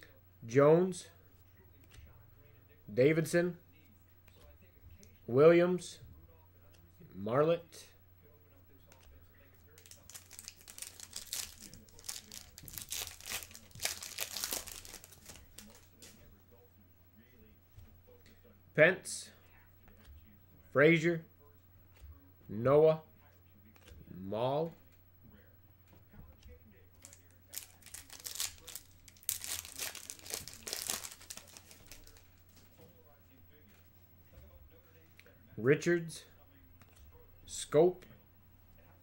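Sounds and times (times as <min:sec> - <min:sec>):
foil wrapper tearing and crinkling: 0:09.8 - 0:16.1, 0:27.0 - 0:32.6.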